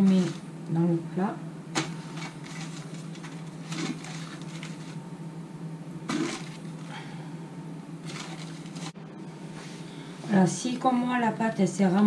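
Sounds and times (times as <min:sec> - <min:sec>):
steady low hum: 0:00.0 - 0:12.0
paper and plastic crinkling: 0:01.7 - 0:05.0, 0:06.1 - 0:07.0, 0:08.0 - 0:09.0.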